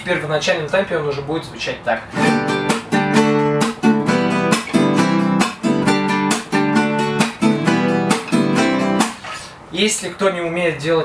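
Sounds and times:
guitar strummed chords: 0:02.2 - 0:09.2.

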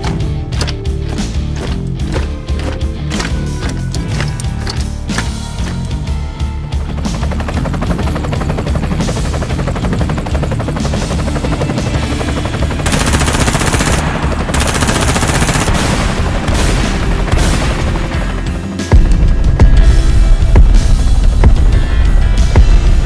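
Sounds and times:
machine-gun fire: 0:12.8 - 0:17.8.

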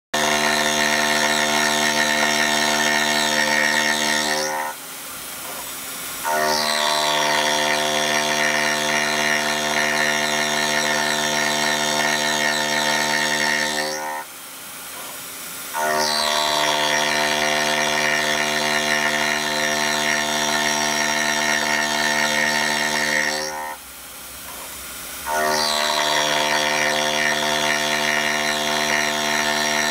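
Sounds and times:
milling machine cutting steel: 0:00.2 - 0:04.8, 0:05.4 - 0:14.3, 0:15.8 - 0:23.8, 0:24.5 - 0:29.9
quieter machine sound: 0:15.8 - 0:29.9.

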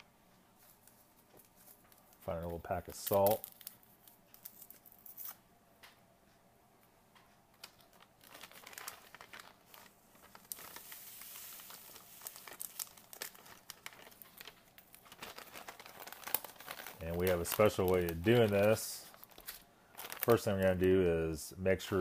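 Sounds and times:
plastic packaging crinkling: 0:00.6 - 0:05.4, 0:07.6 - 0:21.2
paper packet ticks: 0:01.2 - 0:04.9, 0:07.2 - 0:21.0.

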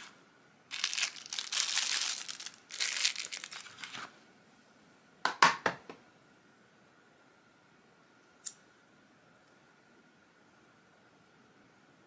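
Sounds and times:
packaging rustling and crinkling: 0:00.7 - 0:04.2.

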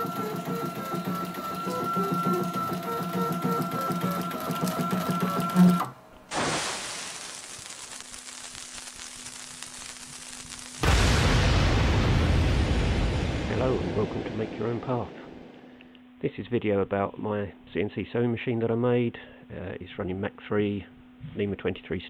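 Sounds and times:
stepper motor whine: 0:00.0 - 0:06.0
even hiss: 0:06.3 - 0:11.8.

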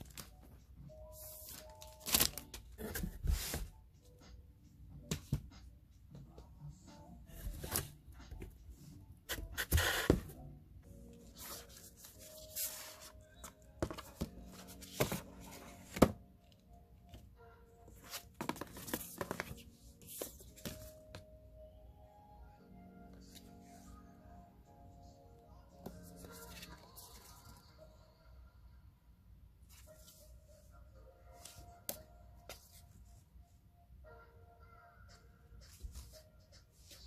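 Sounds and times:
soft background music: 0:00.0 - 0:37.0
bubble wrap and plastic crinkling: 0:01.5 - 0:03.4.

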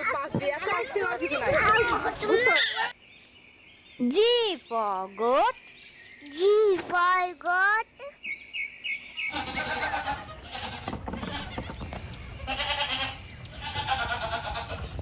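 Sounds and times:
young goats bleating: 0:09.3 - 0:15.0.

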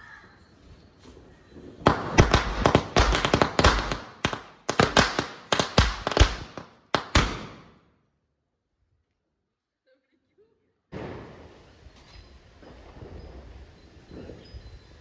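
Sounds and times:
firecrackers bursting: 0:01.0 - 0:07.9, 0:10.9 - 0:14.4.

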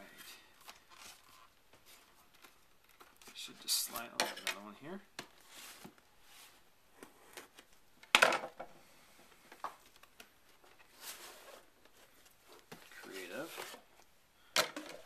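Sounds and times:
cardboard scraping and rubbing: 0:10.8 - 0:11.8.

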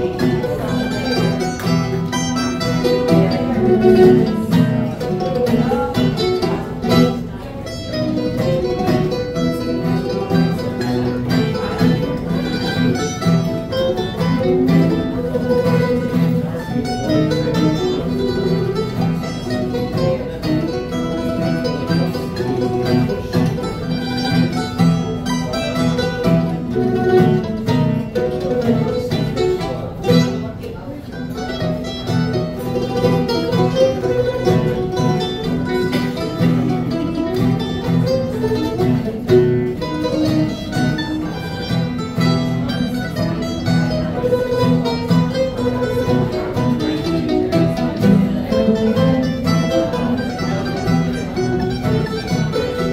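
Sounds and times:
acoustic guitar: 0:00.0 - 0:52.9
plucked mandolins: 0:00.0 - 0:52.9.

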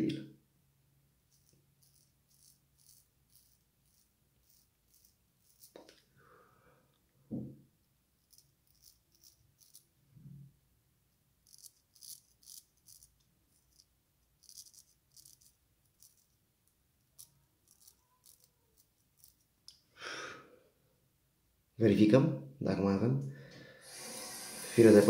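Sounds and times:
razor scraping stubble: 0:01.3 - 0:05.9.

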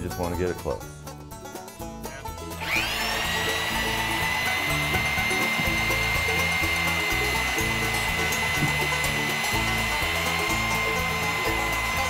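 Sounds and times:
electric drill boring into wood: 0:02.5 - 0:12.0.

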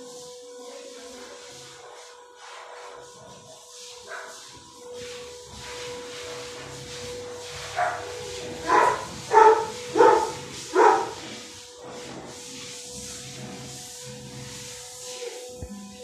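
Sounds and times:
dog barking: 0:07.7 - 0:11.2.

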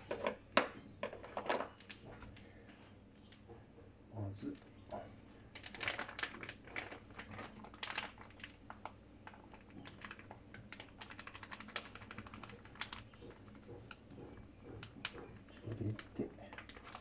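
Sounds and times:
plastic bag crinkling: 0:05.4 - 0:14.0, 0:14.9 - 0:17.0.

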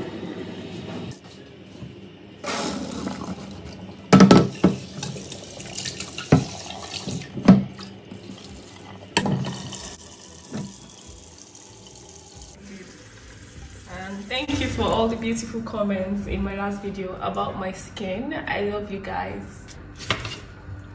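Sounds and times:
water filling a pot: 0:02.4 - 0:14.2
pot knocking against sink: 0:04.1 - 0:04.8
tap running: 0:10.4 - 0:11.0.

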